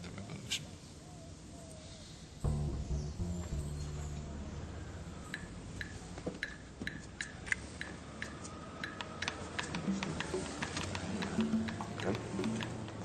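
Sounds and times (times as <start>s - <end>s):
low sustained tone: 2.4s - 6.2s.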